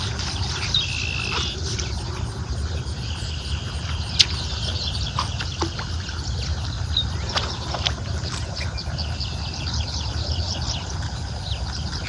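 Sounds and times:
small birds chirping: 0.0s - 12.0s
wind rumbling on microphone: 0.0s - 12.0s.

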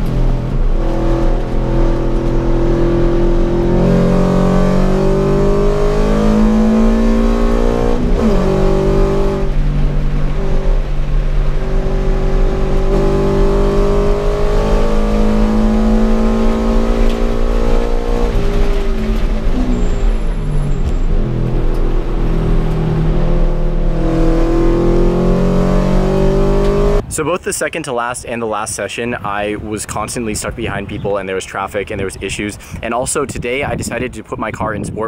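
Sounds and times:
car engine revving: 0.0s - 27.1s.

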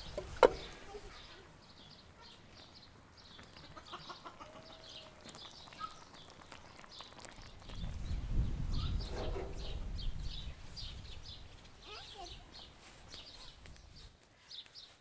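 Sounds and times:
small birds chirping: 0.0s - 15.0s
chickens clucking: 3.4s - 6.5s.

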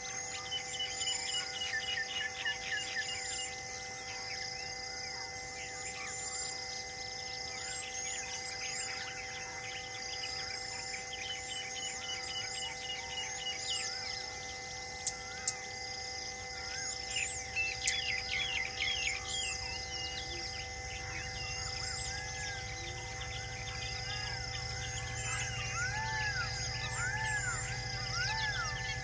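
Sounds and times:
wild birds calling and chirping: 0.0s - 29.0s
steady held tones: 14.6s - 29.0s.

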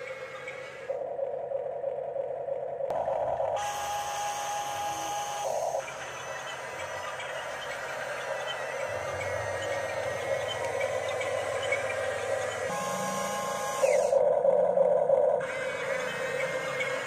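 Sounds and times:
small electric motors whining: 3.6s - 14.2s, 15.4s - 17.0s.

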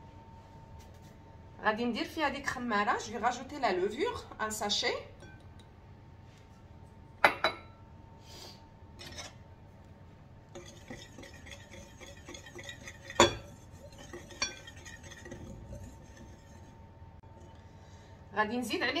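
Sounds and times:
whisk stirring flour in glass bowl: 10.5s - 16.8s
whisk knocking against glass: 10.6s - 16.6s.

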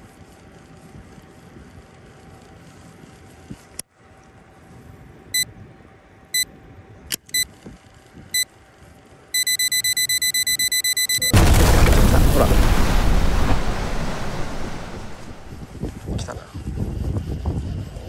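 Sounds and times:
electronic beeper beeping: 9.4s - 13.9s.

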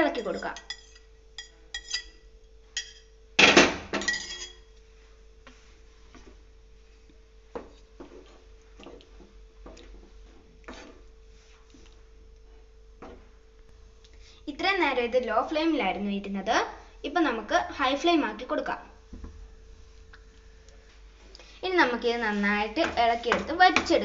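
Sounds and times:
faint steady hum: 0.0s - 24.0s
wooden spatula scraping frying pan: 10.2s - 11.6s.

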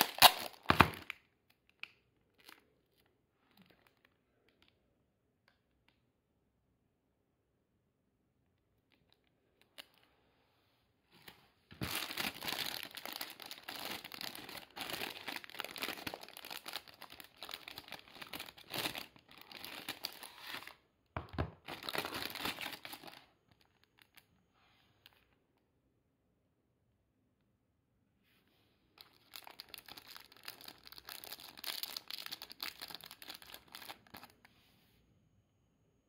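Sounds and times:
cellophane bag crinkling: 0.0s - 2.7s, 11.7s - 20.8s, 21.6s - 24.3s, 29.0s - 34.4s.

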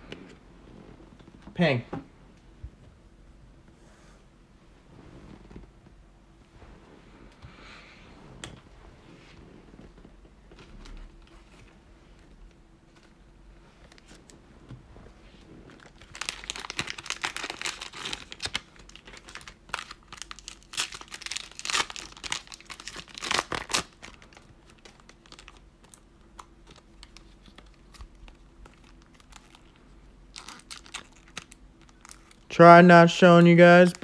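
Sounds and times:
foil wrapper tearing and crinkling: 15.7s - 32.5s.

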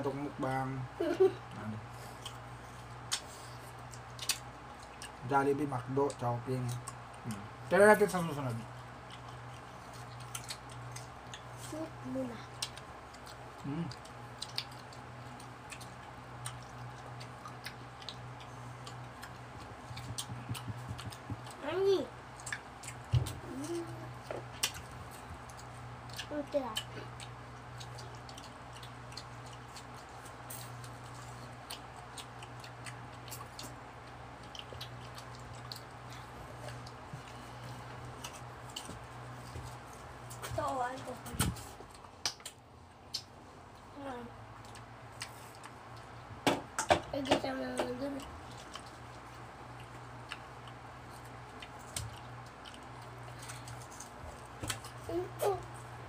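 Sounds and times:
steady low hum: 0.0s - 56.0s
people chewing and slurping: 12.5s - 21.6s
wet mouth clicks and smacks: 14.0s - 15.0s.

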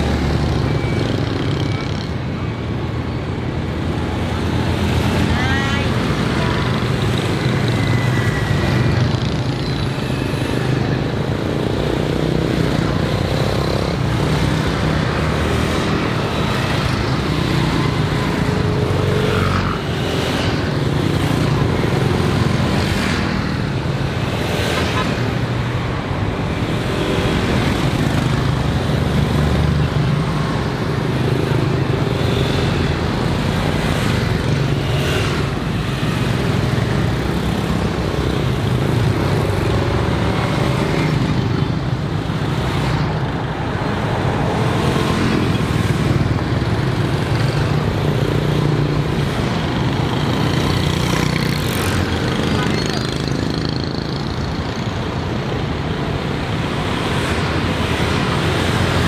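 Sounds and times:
cars passing: 0.0s - 59.0s
motorbikes and scooters passing: 0.0s - 59.0s.

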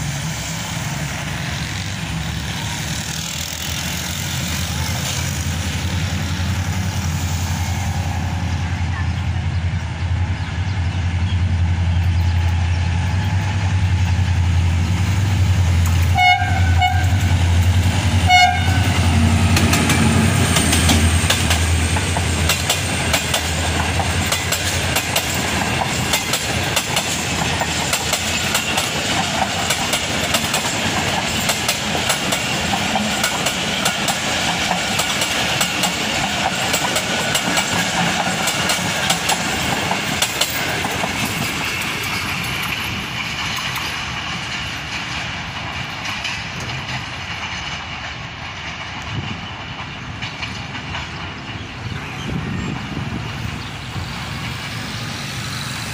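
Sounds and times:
locomotive engine drone: 0.0s - 55.9s
wheels rumbling on rails: 0.0s - 55.9s
train horn blasts: 16.0s - 19.6s.

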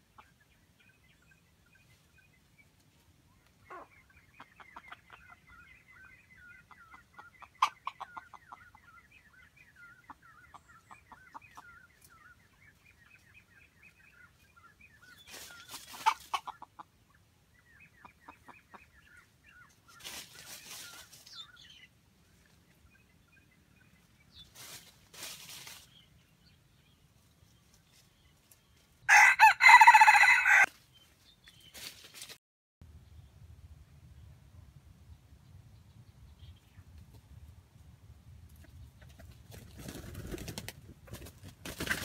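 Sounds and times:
chicken clucking: 3.6s - 12.2s, 15.0s - 21.5s, 38.5s - 42.0s.

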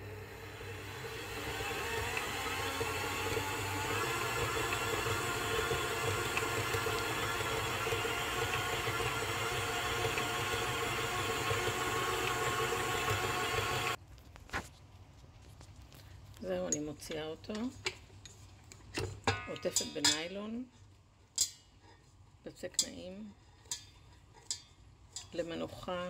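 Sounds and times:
stand mixer motor whir: 0.0s - 14.0s.

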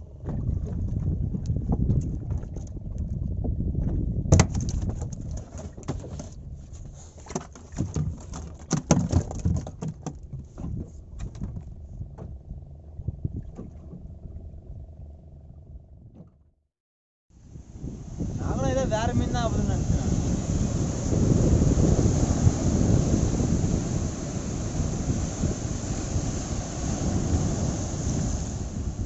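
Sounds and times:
fish slapping on boat deck: 4.3s - 11.7s
steady low rumble: 11.0s - 16.2s, 17.4s - 29.0s.

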